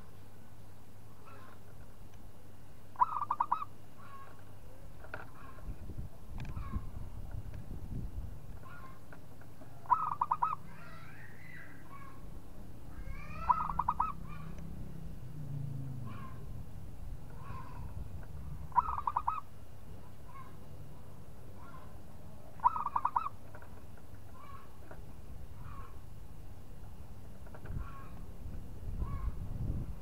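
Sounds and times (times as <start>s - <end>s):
dove cooing: 3.0s - 4.3s, 9.7s - 12.2s, 13.0s - 14.6s, 18.7s - 19.5s, 22.6s - 23.4s.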